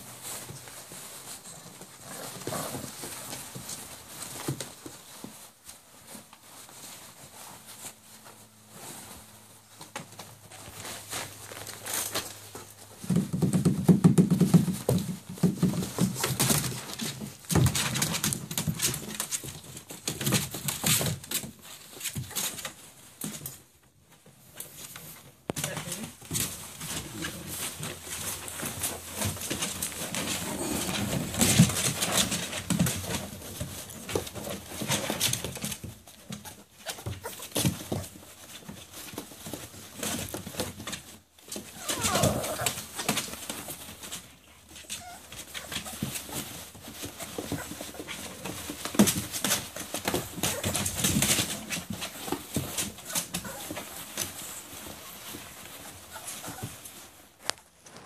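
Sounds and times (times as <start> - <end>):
paper rustling and crackling: 0.0 - 58.0
puppies scratching and pawing: 0.0 - 58.0
puppy whimper: 41.6 - 42.8, 44.8 - 46.6, 53.0 - 54.8, 55.6 - 57.0.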